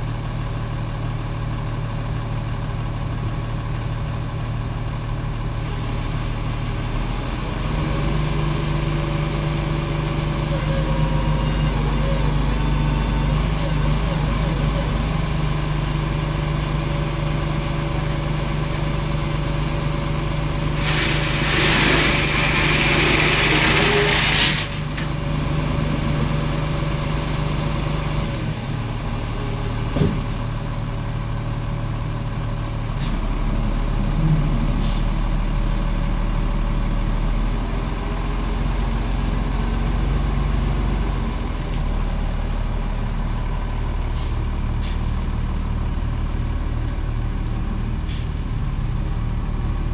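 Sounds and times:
diesel truck engine running: 0.0 - 49.9
air brake hiss: 20.7 - 24.8, 44.1 - 45.1, 48.0 - 48.4.

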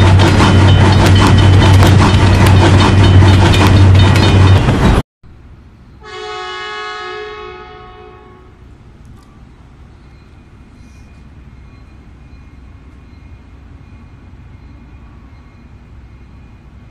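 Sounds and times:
train clattering: 0.0 - 5.0
train horn: 6.0 - 8.6.

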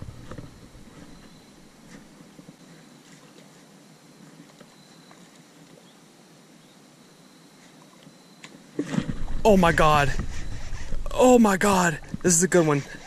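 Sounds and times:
low steady hiss: 0.0 - 13.0
faint high-pitched tone: 4.6 - 5.4.

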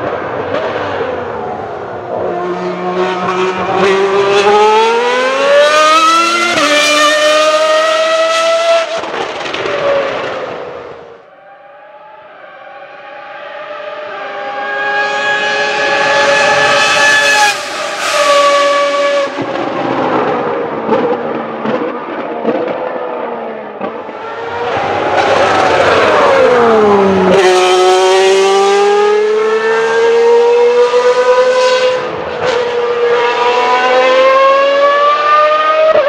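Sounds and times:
racing car engine screaming: 24.2 - 31.4.

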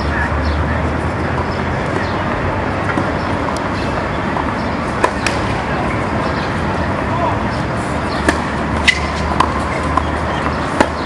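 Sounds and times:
outdoor background noise: 0.0 - 11.0
tennis ball bouncing on court: 2.8 - 3.6, 4.3 - 5.6, 8.0 - 11.0.

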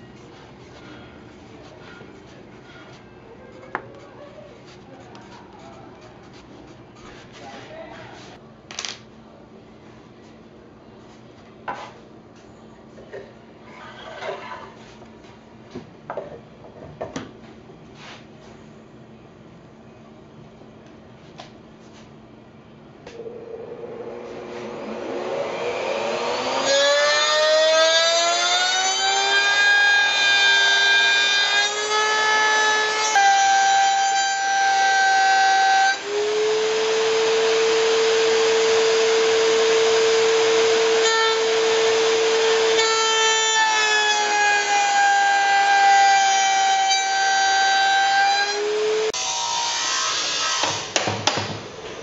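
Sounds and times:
router bit cutting wood: 23.2 - 50.9
router whining: 23.2 - 50.9.

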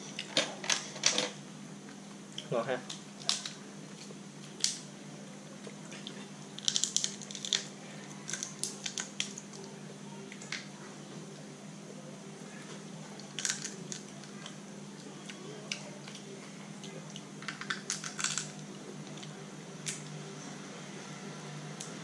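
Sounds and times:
steady low hum: 0.0 - 22.0
crab shell cracking: 6.6 - 9.7, 13.2 - 14.6, 17.4 - 20.0.

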